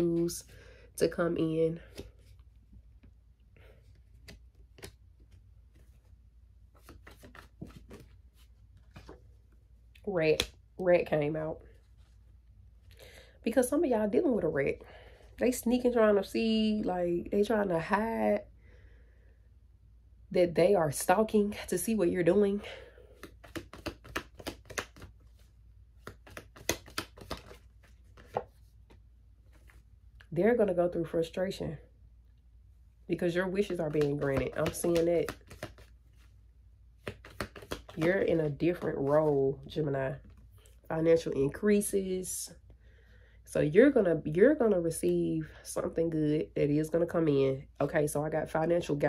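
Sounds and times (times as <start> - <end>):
cards shuffling: 1.8 - 6.1, 6.7 - 9.4, 22.8 - 30.3, 33.4 - 36.4, 37.0 - 40.8.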